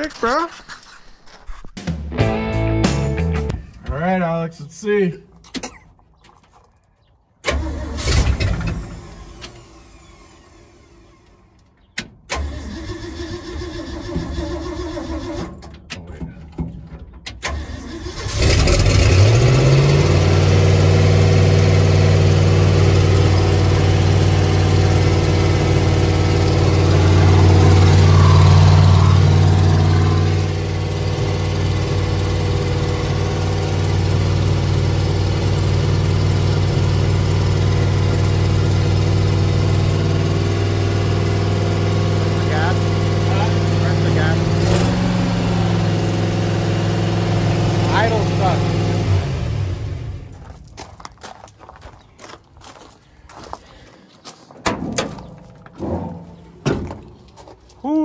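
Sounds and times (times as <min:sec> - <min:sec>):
engine starter cranking: 0:07.4 - 0:20.0
engine idling: 0:12.4 - 0:50.4.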